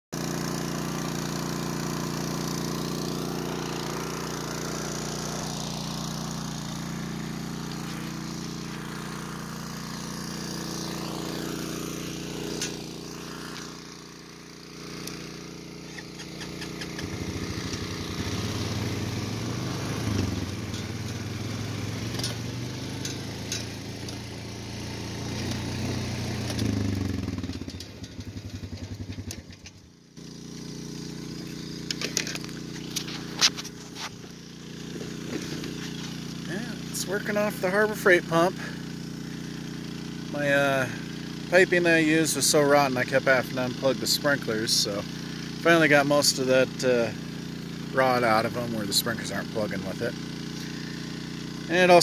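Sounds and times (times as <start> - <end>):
small gasoline engine running: 0.2 - 52.0
short clicks: 15.9 - 17.1.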